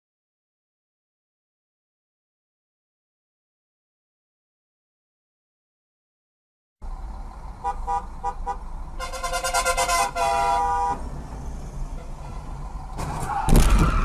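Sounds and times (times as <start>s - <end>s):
car horn honking: 7.6s - 11.1s, 11.9s - 12.6s.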